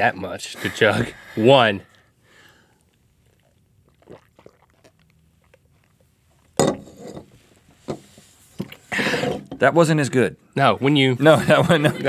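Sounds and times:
people gulping and swallowing: 1.8 - 6.6, 8.6 - 9.5.

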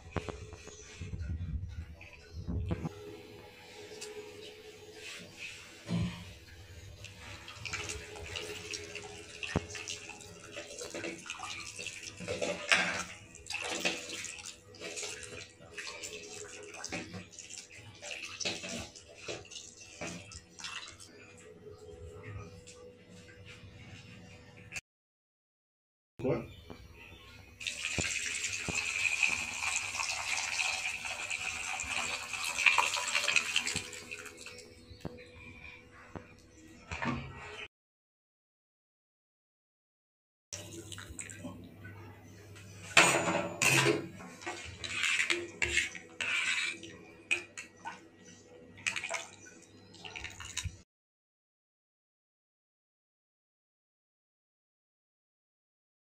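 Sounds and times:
liquid pouring into a metal pan: 27.6 - 34.6
hand squelching food in liquid: 48.8 - 50.8.

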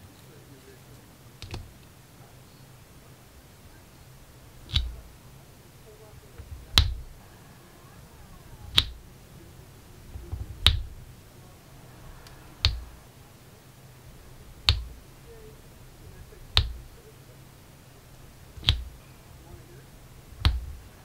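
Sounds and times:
soft thud: 6.4 - 7.2, 10.1 - 11.1, 12.6 - 13.0, 18.6 - 19.0, 20.4 - 21.0.

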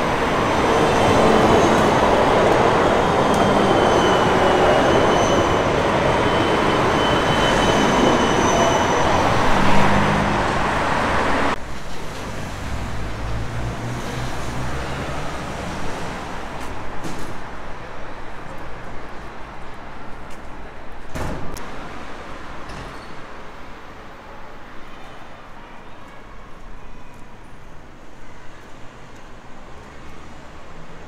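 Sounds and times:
tram wheels rumbling on rails: 0.0 - 24.2
street noise: 0.0 - 31.0.

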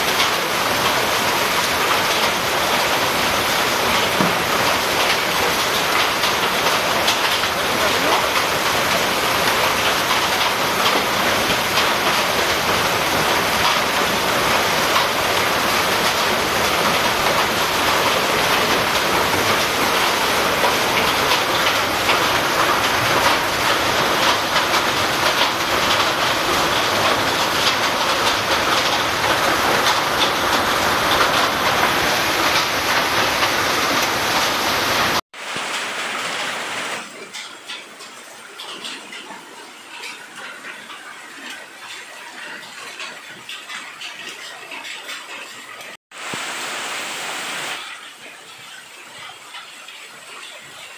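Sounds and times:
hail and heavy rain on pavement: 0.0 - 50.9
quieter rain: 0.0 - 50.9.

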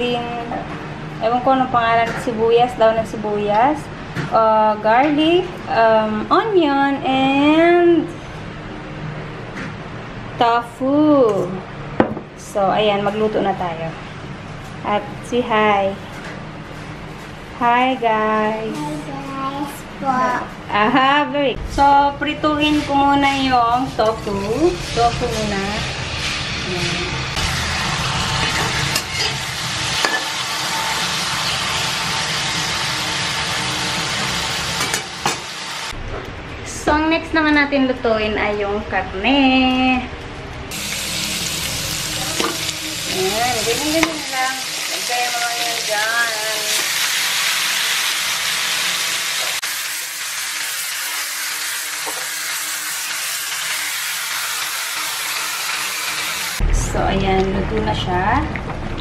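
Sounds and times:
tofu sizzling in hot oil: 27.4 - 34.8, 40.7 - 56.6.

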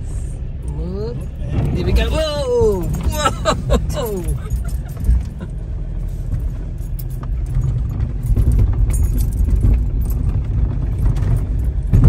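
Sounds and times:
engine and tyres rumbling: 0.0 - 12.0
vehicle body rattling and knocking: 1.2 - 12.0.

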